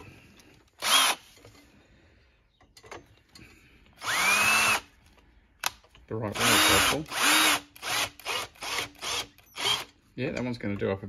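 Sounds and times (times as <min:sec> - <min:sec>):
power drill whine: 0:00.7 - 0:01.4, 0:04.0 - 0:04.9, 0:06.4 - 0:10.0.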